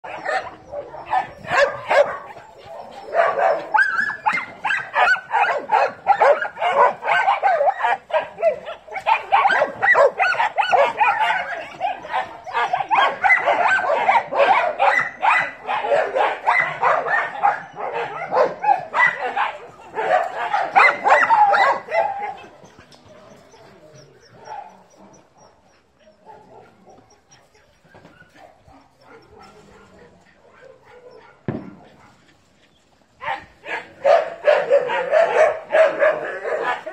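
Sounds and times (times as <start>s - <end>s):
dogs barking and yipping: 0.0s - 36.9s.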